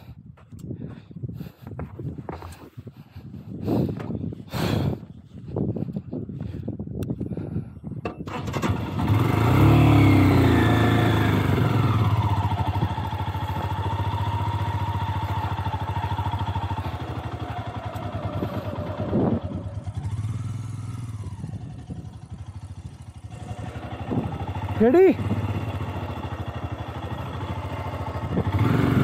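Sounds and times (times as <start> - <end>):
motorcycle engine revving: 8.2 - 29.0.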